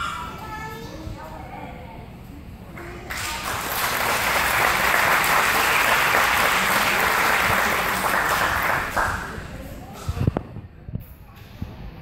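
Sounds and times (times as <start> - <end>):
audience clapping: 2.8 - 9.5.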